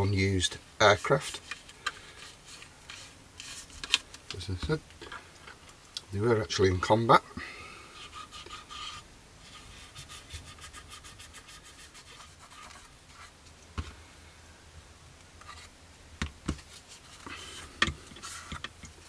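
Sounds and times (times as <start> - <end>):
cotton bud scratching on plastic: 8.0 - 13.4.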